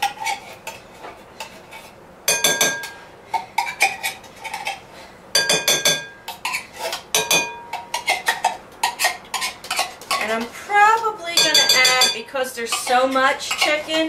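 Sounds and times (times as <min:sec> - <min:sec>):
spoon scraping inside tin can: 0:07.7 - 0:10.6, 0:11.8 - 0:14.0.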